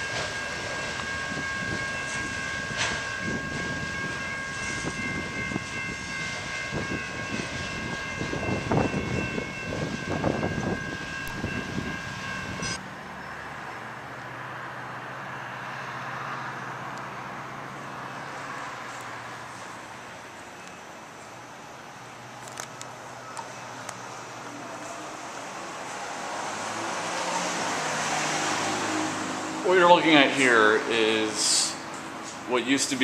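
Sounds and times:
freight train wheel clatter: 0:00.0 - 0:12.8
steady high-pitched tone: 0:00.0 - 0:13.4
street noise: 0:00.0 - 0:33.0.

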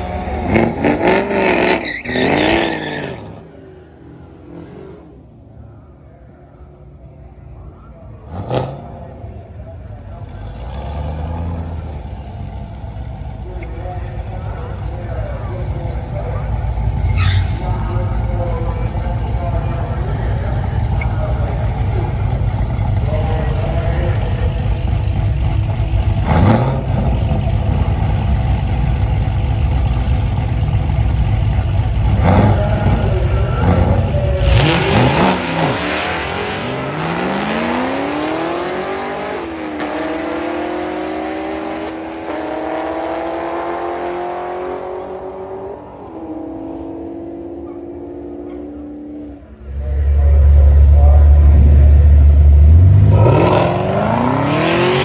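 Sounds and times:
second car engine revving: 0:00.0 - 0:05.4, 0:08.0 - 0:55.0
car engine idling: 0:09.0 - 0:34.8, 0:45.0 - 0:53.1
car accelerating through gears: 0:16.0 - 0:31.0, 0:31.8 - 0:49.4, 0:52.2 - 0:55.0.

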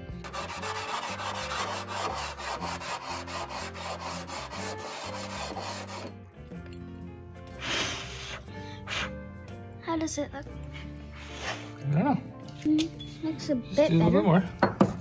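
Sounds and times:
part rubbed on sandpaper: 0:00.2 - 0:06.1.

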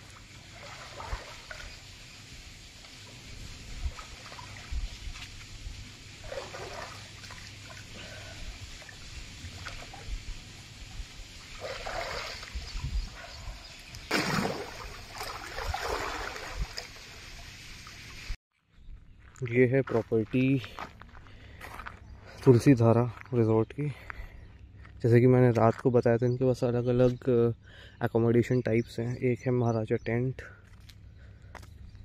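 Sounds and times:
pool water splashing: 0:00.0 - 0:12.8, 0:14.1 - 0:18.4.

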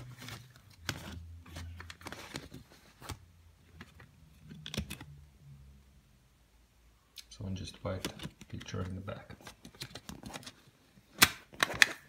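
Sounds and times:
paper booklet rustling: 0:00.0 - 0:05.1.

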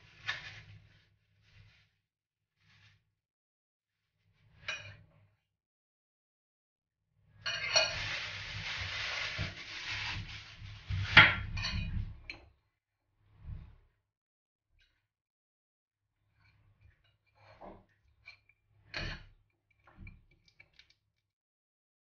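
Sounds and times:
fork scraping glass bowl: 0:07.5 - 0:08.4.

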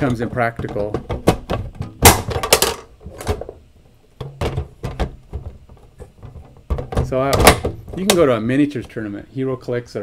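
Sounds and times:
plastic cases clicking and knocking: 0:00.0 - 0:03.6, 0:04.2 - 0:08.4.

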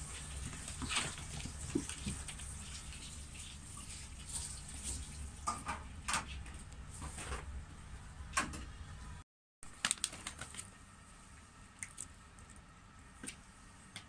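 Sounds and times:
plastic bag crinkling: 0:09.7 - 0:10.8.

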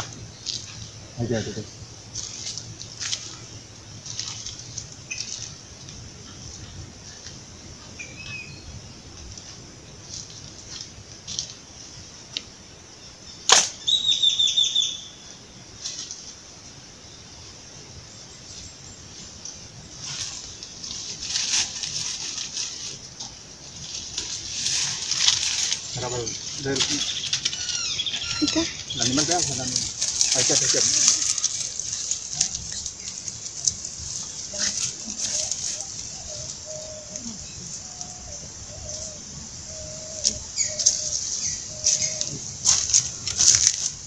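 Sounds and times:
dry leaves rustling and crackling: 0:00.0 - 0:12.6, 0:15.6 - 0:16.7, 0:18.4 - 0:44.0
bird whistled calls: 0:13.8 - 0:15.2.

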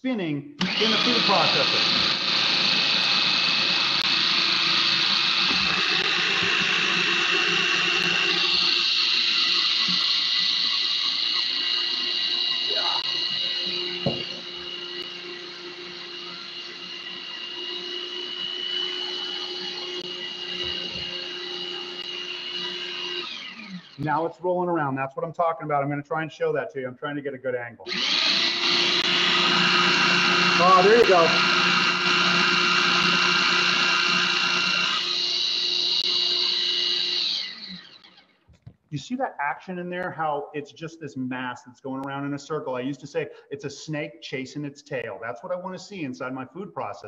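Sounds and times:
food processor motor whining: 0:00.6 - 0:24.0, 0:27.9 - 0:38.7.

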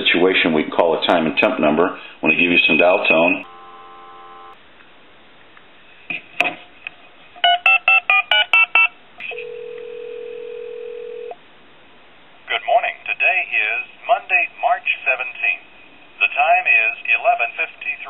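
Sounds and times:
ringback tone: 0:03.4 - 0:04.6
telephone dial tone: 0:03.4 - 0:04.6, 0:08.6 - 0:11.4.

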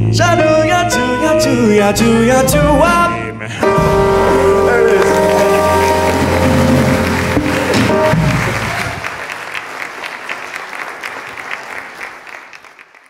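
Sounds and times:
band's last chord: 0:03.6 - 0:08.7
audience applauding: 0:04.0 - 0:13.0.

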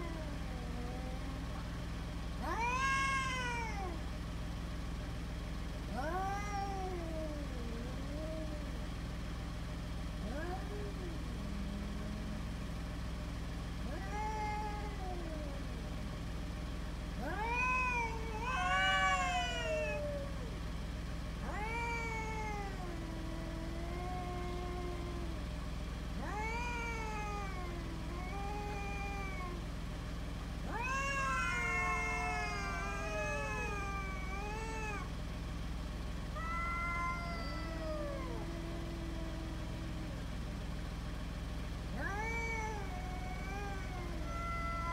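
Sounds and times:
cats yowling: 0:00.0 - 0:01.7, 0:02.4 - 0:04.2, 0:05.8 - 0:09.1, 0:10.2 - 0:12.5, 0:13.8 - 0:16.2, 0:17.2 - 0:20.7, 0:21.4 - 0:25.5, 0:26.1 - 0:29.8, 0:30.6 - 0:35.2, 0:36.2 - 0:40.4, 0:41.9 - 0:44.9.

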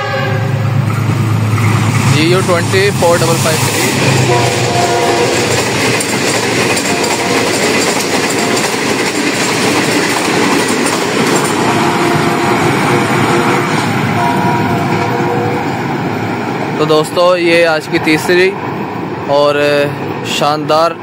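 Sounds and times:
train wheels rushing on rails: 0:00.0 - 0:21.0.

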